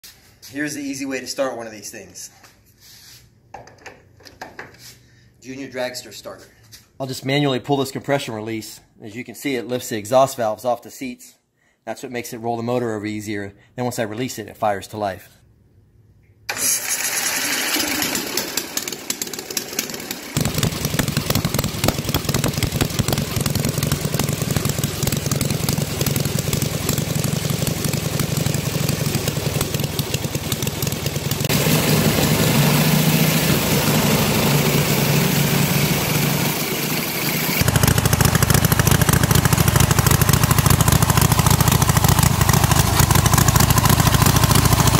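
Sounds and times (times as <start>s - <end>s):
starter spinning engine: 16.5s - 44.9s
motorcycle engine running: 17.3s - 44.9s.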